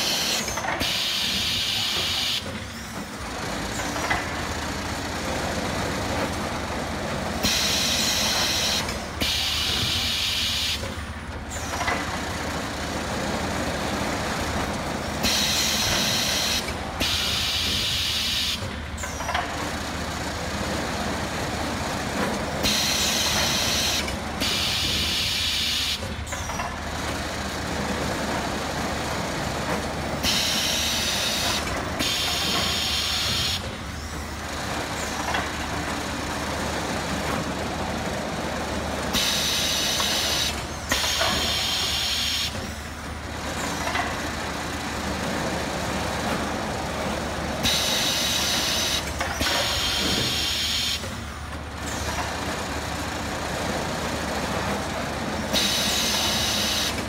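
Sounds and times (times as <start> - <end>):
pneumatic gripper air hisses: 0.0 - 4.4, 7.4 - 12.1, 15.1 - 19.6, 22.6 - 26.7, 30.2 - 35.6, 39.1 - 43.0, 47.6 - 52.3, 55.5 - 57.0
factory machinery hum: 0.0 - 57.0.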